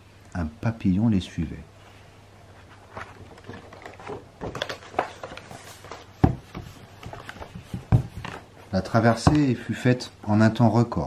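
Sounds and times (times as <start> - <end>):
light knocks and taps: 9.2 - 9.5.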